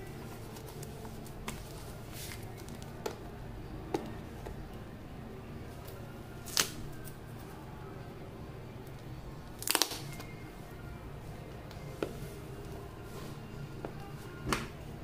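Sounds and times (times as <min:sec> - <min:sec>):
steady low hum: 0:00.0 - 0:15.0
tape peeling crackles and clicks: 0:05.8 - 0:07.2, 0:08.9 - 0:10.4.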